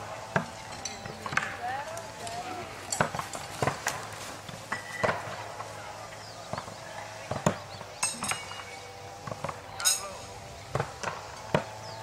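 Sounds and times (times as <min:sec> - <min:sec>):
faint murmur of voices: 0:05.0 - 0:11.0.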